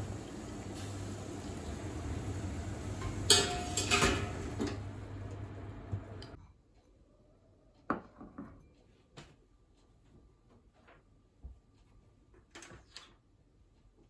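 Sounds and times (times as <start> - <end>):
stove and boiling pot hum: 0.0 - 6.4.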